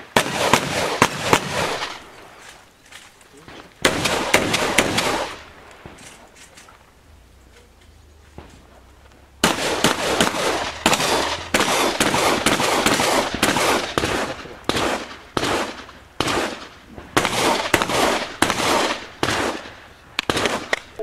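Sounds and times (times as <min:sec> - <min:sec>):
shotgun shots with ringing echo: 0:00.0 - 0:02.2, 0:03.4 - 0:06.3, 0:09.4 - 0:21.0.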